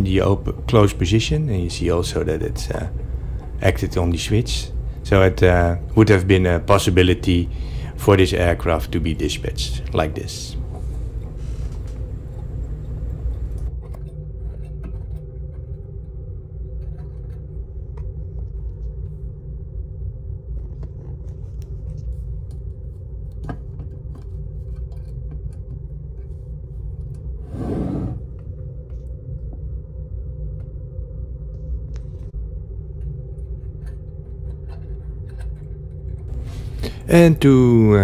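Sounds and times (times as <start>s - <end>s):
low handling rumble: 0.0s - 13.7s
short scrape: 27.5s - 28.3s.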